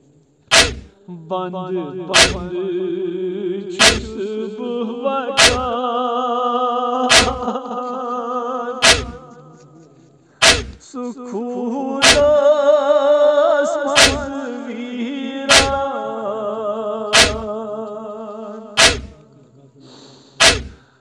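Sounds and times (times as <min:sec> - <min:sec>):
sharp slap-like beat: 0:00.5 - 0:00.9, 0:02.2 - 0:02.5, 0:03.8 - 0:04.2, 0:05.4 - 0:05.7, 0:07.1 - 0:07.5, 0:08.8 - 0:09.2, 0:10.4 - 0:10.8, 0:12.0 - 0:12.4, 0:14.0 - 0:14.3, 0:15.5 - 0:15.8, 0:17.2 - 0:17.5, 0:18.8 - 0:19.2, 0:20.4 - 0:20.8
man singing a lament: 0:01.0 - 0:10.2, 0:10.8 - 0:19.8.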